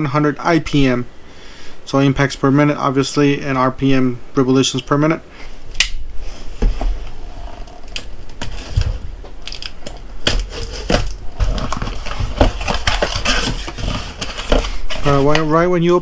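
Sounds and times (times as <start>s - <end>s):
cardboard flaps crackling: 6.5s - 15.6s
wrapping crinkling: 7.4s - 15.5s
knife cutting cardboard: 10.2s - 15.4s.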